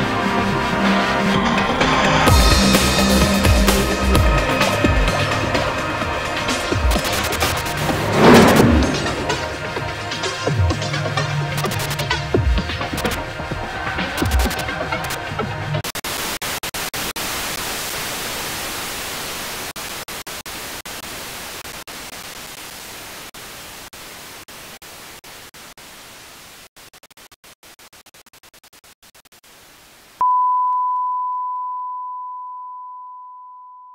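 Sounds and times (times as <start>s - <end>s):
tv static hiss: 6.7s - 7.8s, 14.2s - 30.2s.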